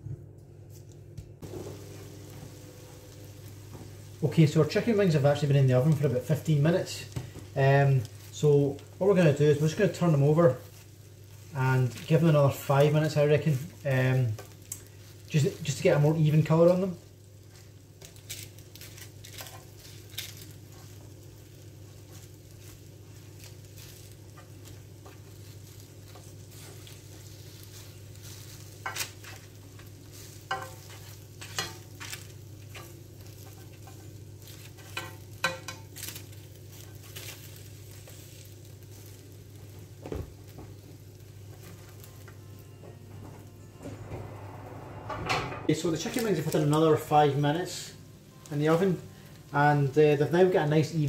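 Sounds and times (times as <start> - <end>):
steady low hum: 0.0 - 12.1, 39.2 - 51.0
chicken wings sizzling: 1.4 - 43.8, 45.7 - 51.0.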